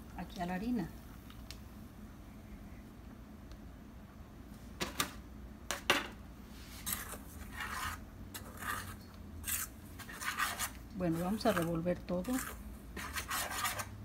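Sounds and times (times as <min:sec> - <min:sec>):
spoon scraping metal bowl: 0:06.8 - 0:14.0.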